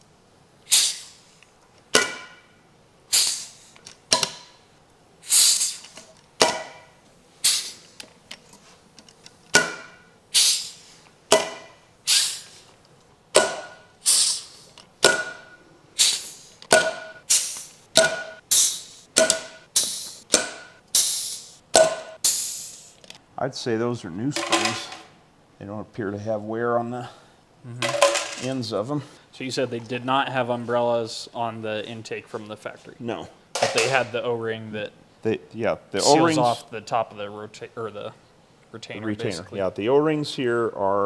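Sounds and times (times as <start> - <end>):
air blast with trailing hiss: 0.6 - 1.4, 3.1 - 3.8, 5.2 - 6.0, 7.4 - 8.0, 10.3 - 11.0, 12.0 - 12.7, 14.0 - 14.8, 16.0 - 16.6, 17.2 - 20.3, 20.9 - 21.6, 22.2 - 23.0.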